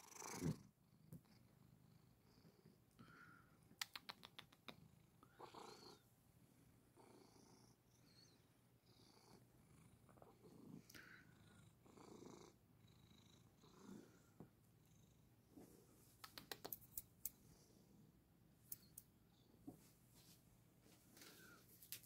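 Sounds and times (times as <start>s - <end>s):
cat purring softly: 0.0s - 16.8s
sharp clicks: 3.8s - 4.7s, 16.2s - 17.4s.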